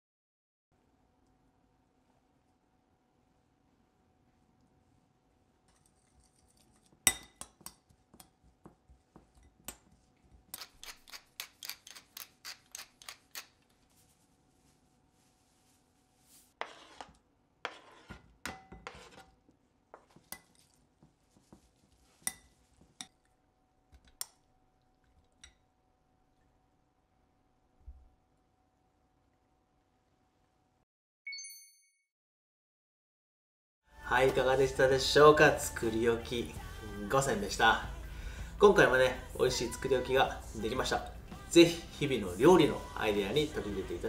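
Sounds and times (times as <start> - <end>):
metal spoon clinking in glass bowl: 5.7 - 8.4, 22.2 - 23.2.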